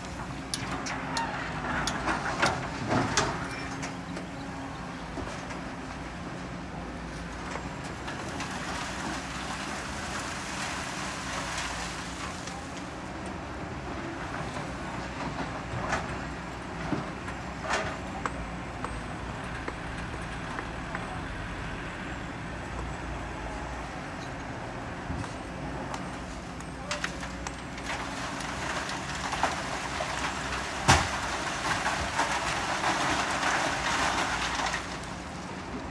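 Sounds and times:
sand and stones rushing into truck: 0:08.2 - 0:12.6, 0:27.8 - 0:35.4
stones knocking against truck: 0:28.8 - 0:34.3.

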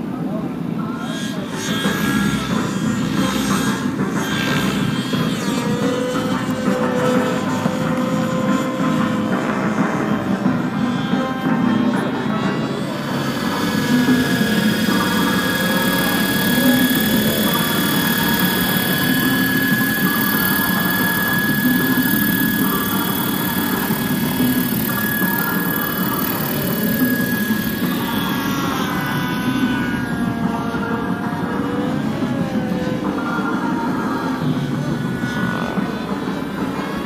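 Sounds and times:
model helicopter rotor whine: 0:00.1 - 0:37.0.

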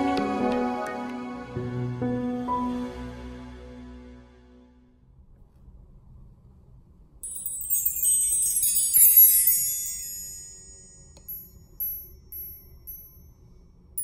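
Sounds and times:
bar chimes ringing: 0:07.2 - 0:13.7.

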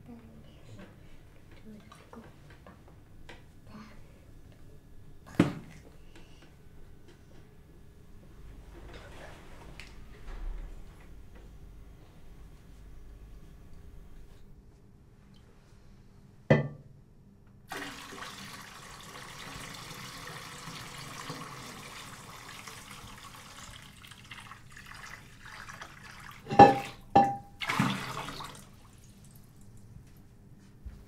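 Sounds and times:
water pouring and splashing: 0:17.7 - 0:29.8
metal pot clanking: 0:26.4 - 0:27.6.

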